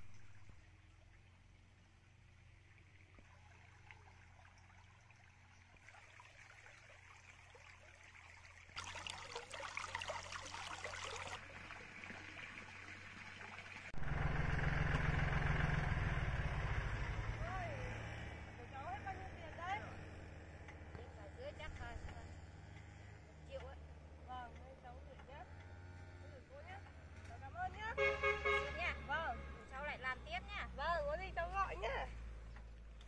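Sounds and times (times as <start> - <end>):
stream trickling over stones: 0.0 - 27.9
tractor engine running: 14.0 - 29.0.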